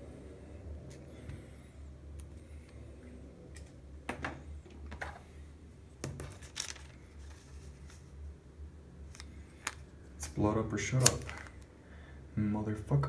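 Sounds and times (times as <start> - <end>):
steady low hum: 0.0 - 13.0
paper rustling: 6.0 - 8.2.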